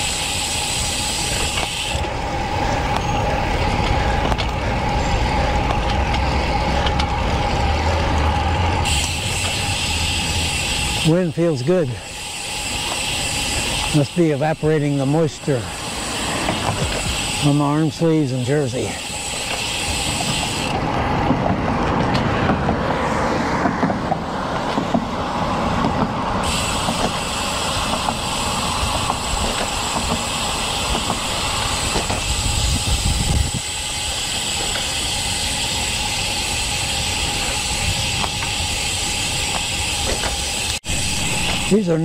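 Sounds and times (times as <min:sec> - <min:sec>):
bike tyres rolling on concrete: 0:00.0 - 0:42.0
wind on microphone: 0:30.9 - 0:33.8.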